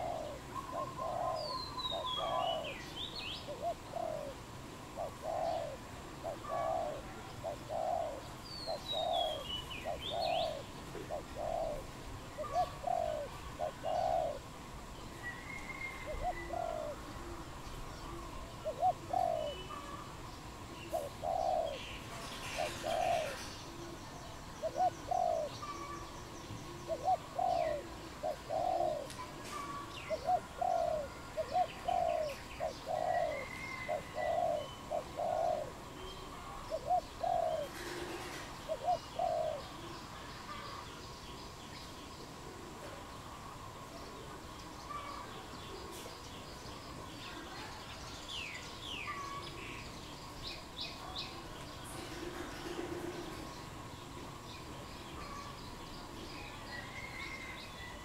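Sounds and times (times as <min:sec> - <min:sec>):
dove cooing: 0:00.0 - 0:40.9, 0:51.0 - 0:53.6, 0:55.1 - 0:58.0
small birds chirping: 0:00.0 - 0:58.0.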